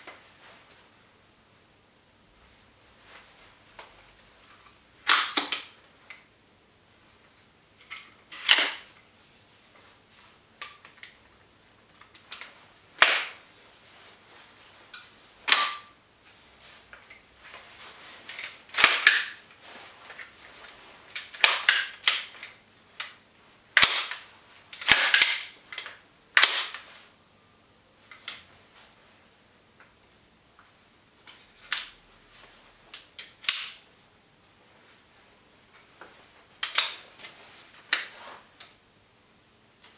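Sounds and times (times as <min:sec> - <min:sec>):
plastic and metal rifle clicks: 0:24.8 - 0:26.8.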